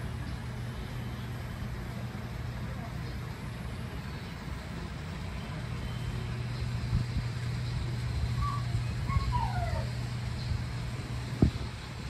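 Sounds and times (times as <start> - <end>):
low hum and rumble: 0.0 - 12.0
soft low thumps: 11.3 - 11.9.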